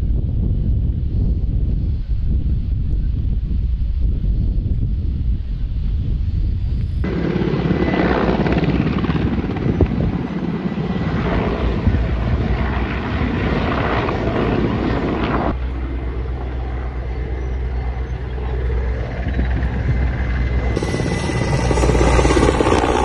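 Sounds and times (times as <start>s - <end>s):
helicopter flying overhead: 6.5s - 23.0s.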